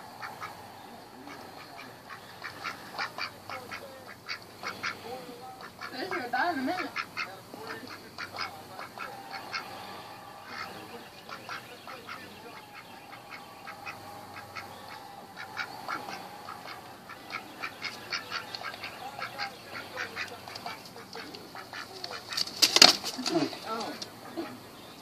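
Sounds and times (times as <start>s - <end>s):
duck soft calls: 0.0s - 22.6s
bill nibbling clicks: 1.3s - 5.0s, 15.4s - 24.2s.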